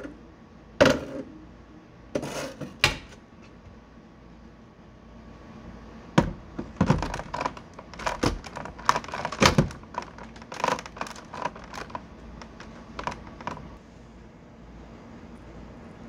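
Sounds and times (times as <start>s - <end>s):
plastic parts clicking and knocking: 6.2s - 13.7s.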